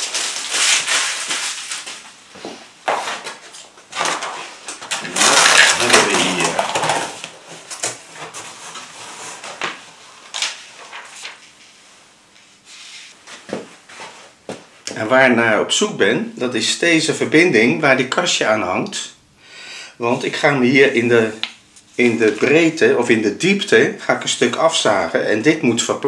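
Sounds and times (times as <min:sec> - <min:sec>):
paper rustling: 0:00.0 - 0:02.2, 0:02.8 - 0:11.8
cardboard flaps scraping: 0:00.0 - 0:11.6.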